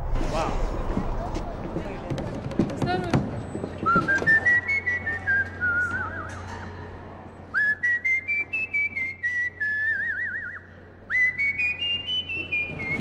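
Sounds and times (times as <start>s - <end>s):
person whistling a tune: 3.8s - 6.4s, 7.5s - 13.0s.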